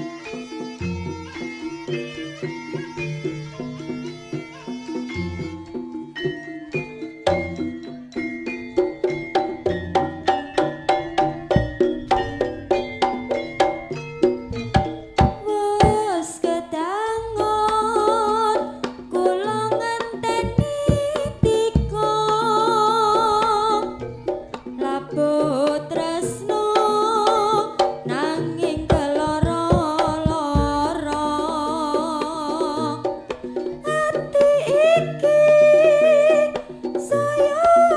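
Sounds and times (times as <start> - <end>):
wavering melody with vibrato: 0.0 - 37.9
hand drum strokes: 8.8 - 16.6, 17.4 - 37.9.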